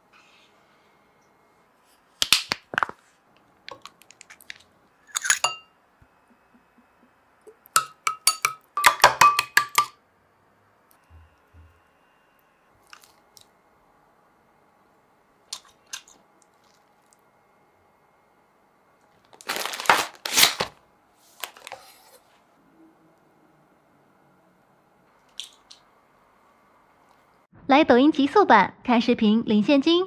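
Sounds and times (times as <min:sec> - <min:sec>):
metal spoon clinking glass bowl: 0:05.1 - 0:05.7, 0:07.8 - 0:09.9
utensils and dishes clinking: 0:05.1 - 0:05.7, 0:07.8 - 0:09.9.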